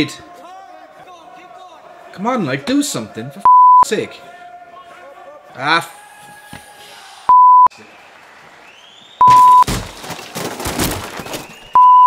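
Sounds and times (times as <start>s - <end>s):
crowd noise: 0.0s - 9.6s
censor bleeps: 3.5s - 3.8s, 7.3s - 7.7s, 9.2s - 9.6s, 11.8s - 12.0s.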